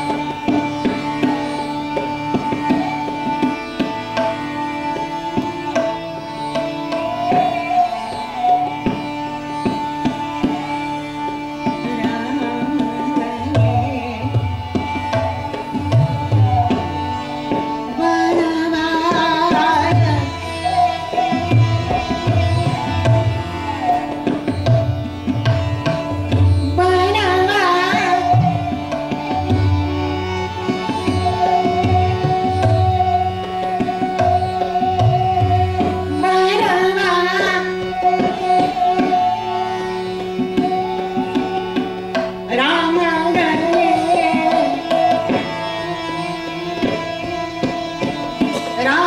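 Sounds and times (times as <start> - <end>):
tabla beat: 0.0 - 49.0
tanpura drone: 0.0 - 49.0
woman singing: 10.0 - 24.4, 26.7 - 49.0.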